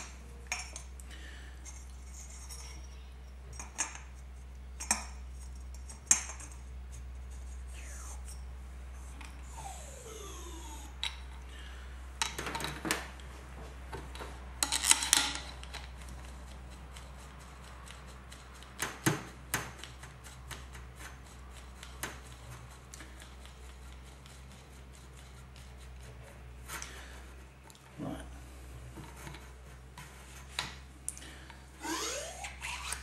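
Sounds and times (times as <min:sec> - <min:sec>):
metal parts clicking and knocking: 0:00.0 - 0:01.0, 0:01.6 - 0:04.2, 0:04.8 - 0:06.6, 0:14.6 - 0:20.6
steady low hum: 0:00.0 - 0:33.0.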